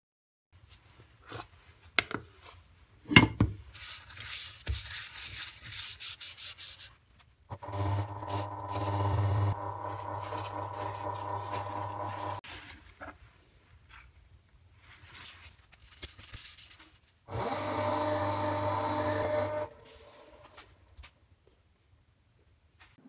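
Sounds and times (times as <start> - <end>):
lathe motor hum: 7.5 - 12.4, 17.3 - 19.8
cloth rubbing paste onto bowl: 9.9 - 14.1.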